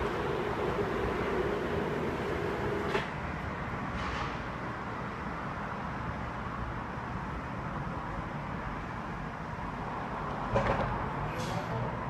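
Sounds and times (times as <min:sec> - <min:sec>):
tubular motor humming: 0:00.0 - 0:02.9.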